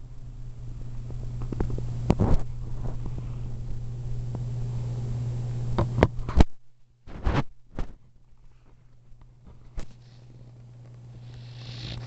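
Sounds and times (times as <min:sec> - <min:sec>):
puppy snoring: 0:11.2 - 0:12.0.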